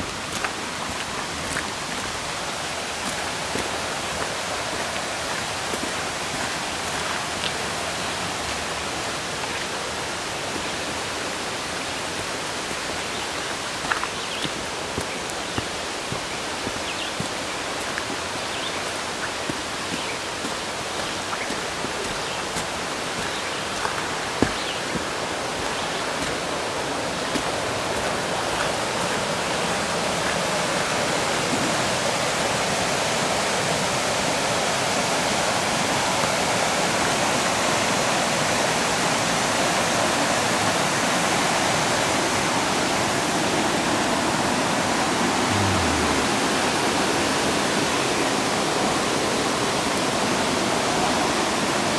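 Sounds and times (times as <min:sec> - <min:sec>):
light footsteps on trail: 0:00.0 - 0:32.0
stream rushing over rapids: 0:00.0 - 0:51.9.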